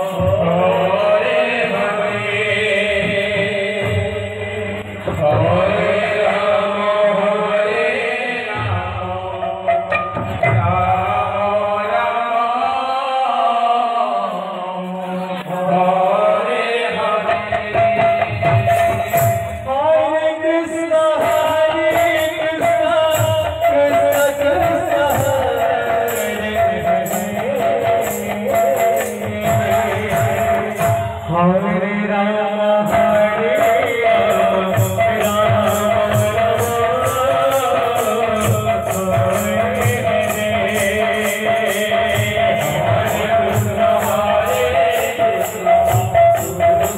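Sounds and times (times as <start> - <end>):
man chanting into microphone: 10.5 - 46.9
barrel drum: 17.3 - 19.8
hand cymbals: 21.2 - 31.3, 32.9 - 46.9.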